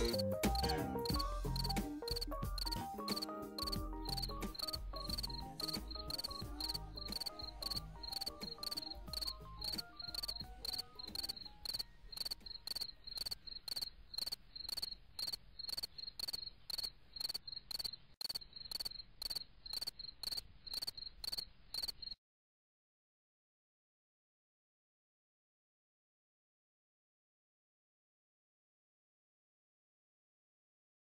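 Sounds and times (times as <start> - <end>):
cricket chirping: 0.0 - 2.8, 3.6 - 22.2
music: 0.0 - 12.8.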